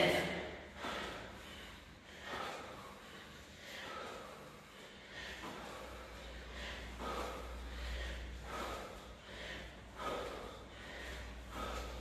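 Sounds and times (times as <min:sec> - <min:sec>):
person breathing hard: 0:00.0 - 0:12.0.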